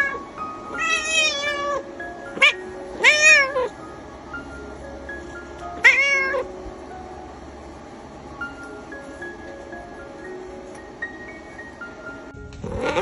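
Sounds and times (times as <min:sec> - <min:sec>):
cat meowing: 0:00.0 - 0:03.7, 0:05.8 - 0:06.5, 0:12.6 - 0:13.0.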